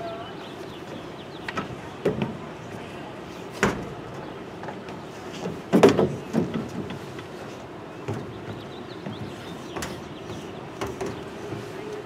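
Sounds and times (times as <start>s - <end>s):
outdoor background noise: 0.0s - 12.0s
knocks and thumps: 5.4s - 7.0s.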